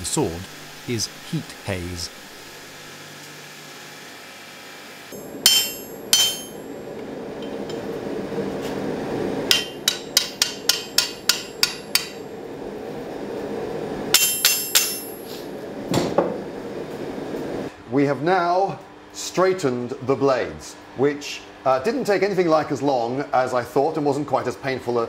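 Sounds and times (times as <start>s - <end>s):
hammer striking blade on anvil: 5.2s - 6.6s, 9.5s - 12.2s, 14.1s - 15.3s.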